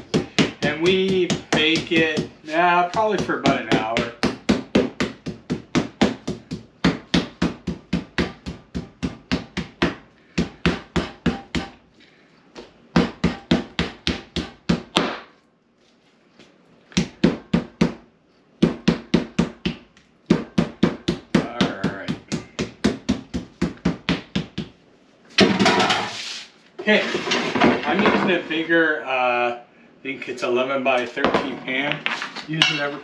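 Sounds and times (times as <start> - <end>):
meat mallet pounding steak: 0.0 - 11.8, 12.9 - 15.3, 16.9 - 18.0, 18.6 - 24.8.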